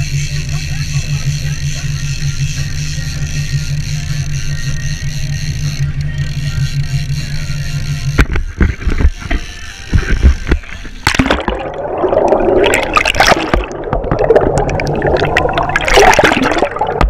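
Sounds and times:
muffled underwater rushing and gurgling: 0:00.0 - 0:17.0
steady low hum: 0:00.0 - 0:17.0
camera handling knocks and thumps: 0:08.2 - 0:11.2
fizzing crackle: 0:11.0 - 0:17.0.

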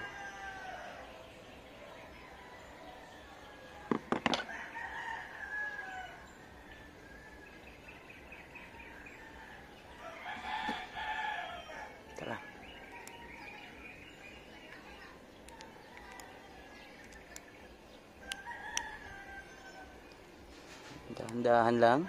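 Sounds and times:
rooster crowing: 0:00.0 - 0:01.2, 0:02.1 - 0:13.8, 0:18.2 - 0:20.1.

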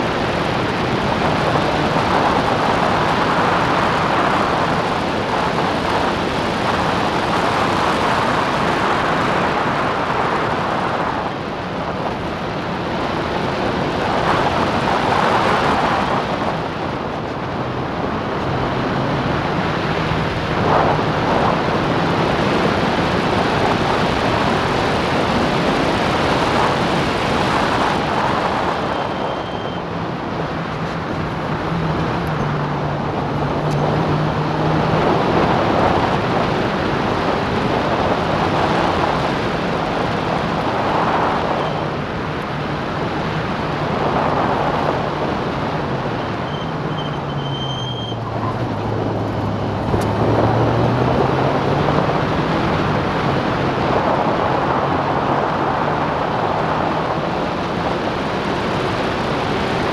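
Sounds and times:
heavy wind rush: 0:00.0 - 0:59.9
racing car engine: 0:00.0 - 0:59.9.

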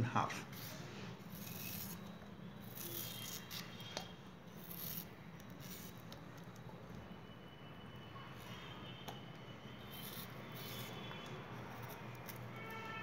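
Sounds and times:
knife scraping through yam: 0:00.5 - 0:04.0, 0:09.8 - 0:12.8.

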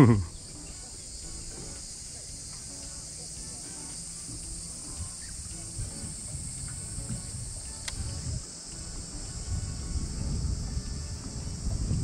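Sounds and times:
insect chorus buzzing: 0:00.0 - 0:12.0
sharp click: 0:06.7 - 0:08.2.

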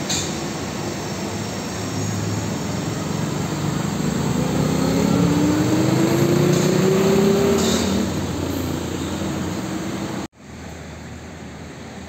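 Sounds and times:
truck diesel engine running: 0:00.0 - 0:10.3
tyre and road noise: 0:00.0 - 0:10.3
engine accelerating: 0:01.1 - 0:10.3.

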